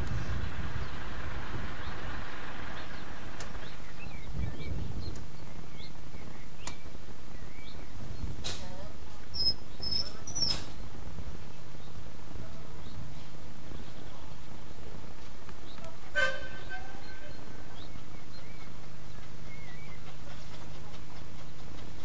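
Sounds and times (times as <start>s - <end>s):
small birds chirping: 1.7s - 22.0s
sharp clicks: 6.6s - 6.8s.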